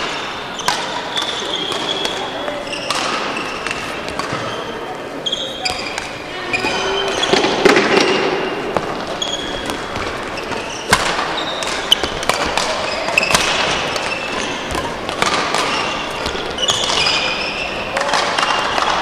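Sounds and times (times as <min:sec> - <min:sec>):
rackets hitting shuttlecock: 0:00.0 - 0:19.0
shoes squeaking on court floor: 0:00.0 - 0:19.0.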